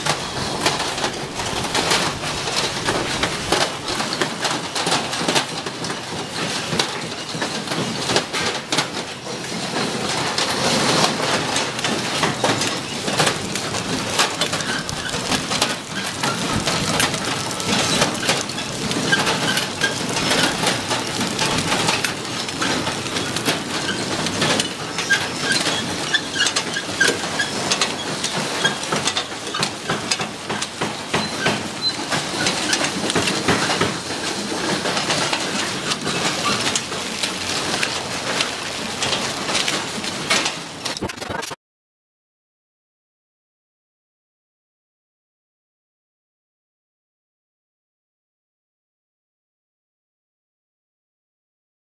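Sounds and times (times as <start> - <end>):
packing machine running: 0.0 - 41.5.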